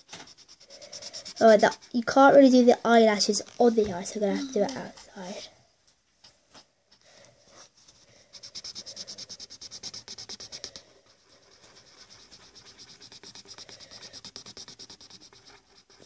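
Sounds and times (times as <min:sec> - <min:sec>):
pen scratching on paper: 0:00.0 - 0:02.6, 0:08.2 - 0:16.0.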